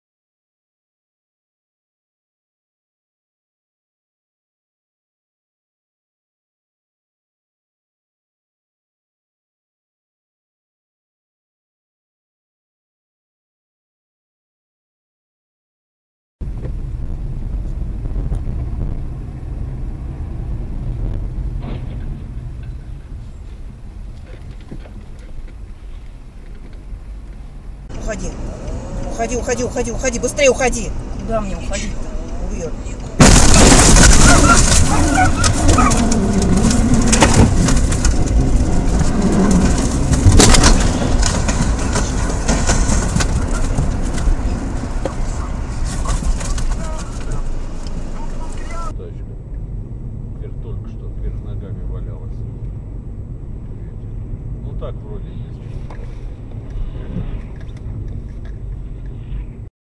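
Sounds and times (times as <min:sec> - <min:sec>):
car driving rumble from inside: 0:16.4 - 0:59.7.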